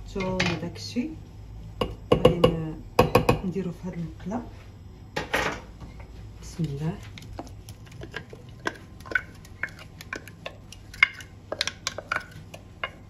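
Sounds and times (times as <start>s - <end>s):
spoon scraping glass bowl: 7.1s - 13.0s.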